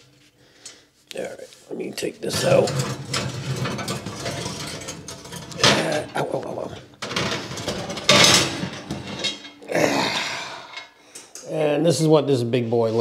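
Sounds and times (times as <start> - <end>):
iron pan scraping on oven rack: 2.2 - 9.7.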